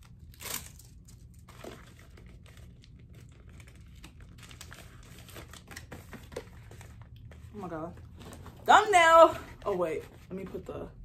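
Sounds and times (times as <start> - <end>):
plastic packaging crinkling: 0.0 - 7.1.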